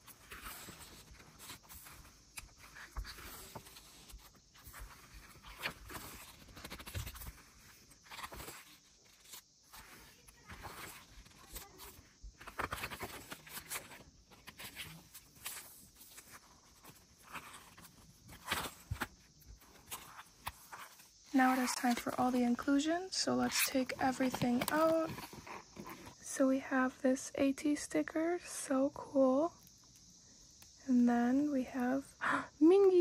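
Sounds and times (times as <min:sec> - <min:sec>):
paper pages rustling: 0:00.0 - 0:22.6, 0:23.4 - 0:26.2.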